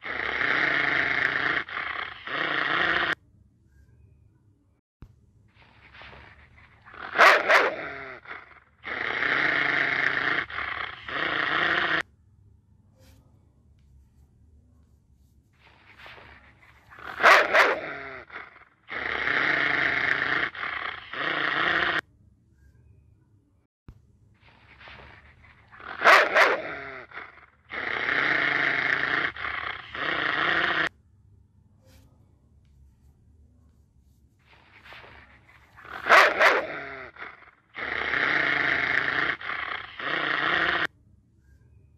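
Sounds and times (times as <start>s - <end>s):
dog growling: 0.0s - 3.2s, 5.8s - 12.0s, 15.8s - 22.0s, 24.7s - 30.9s, 34.7s - 40.9s
dog barking: 6.7s - 8.6s, 16.9s - 19.0s, 25.7s - 28.2s, 35.1s - 40.9s.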